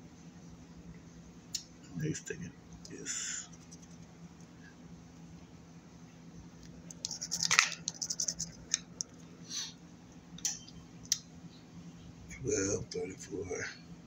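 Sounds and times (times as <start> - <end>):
coin scraping lottery ticket: 7.1 - 8.6.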